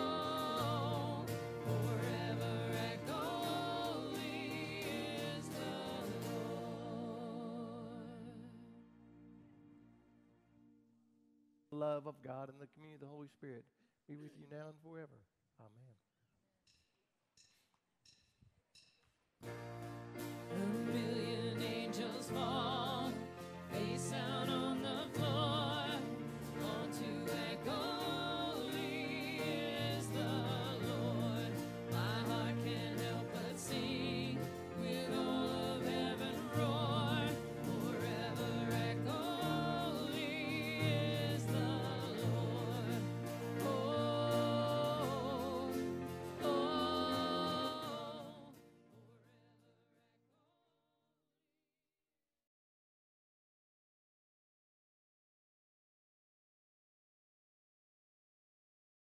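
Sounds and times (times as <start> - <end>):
drums: 0.0 - 6.9, 18.8 - 48.4
bass guitar: 0.0 - 7.2, 19.5 - 48.2
woman singing with vibrato: 0.0 - 8.7, 20.5 - 48.5
acoustic guitar: 0.0 - 9.9, 19.4 - 49.1.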